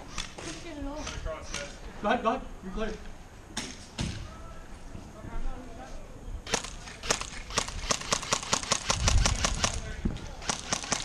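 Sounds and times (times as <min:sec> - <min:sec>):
airsoft guns firing: 0:06.5 - 0:11.0.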